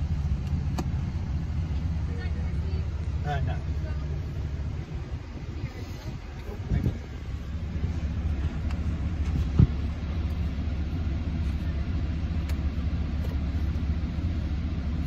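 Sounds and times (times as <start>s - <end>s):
vehicle cabin rumble: 0.0s - 15.0s
short thump: 9.2s - 9.8s.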